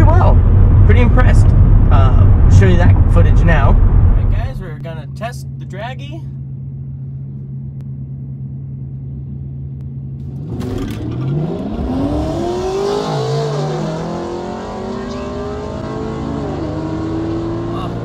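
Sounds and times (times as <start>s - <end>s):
car engine accelerating hard: 10.2s - 18.0s.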